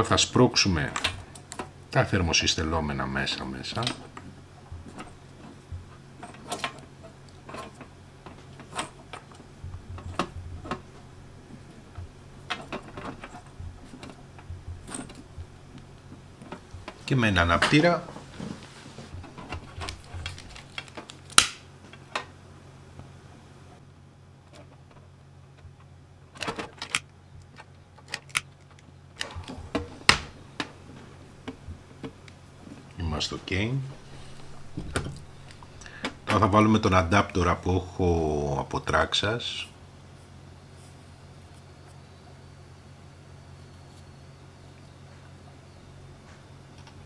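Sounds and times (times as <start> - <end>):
low steady hum: 0.0 - 47.0
clicks and clatter of wires: 0.9 - 1.8, 3.7 - 22.3, 24.4 - 33.0, 34.3 - 36.4.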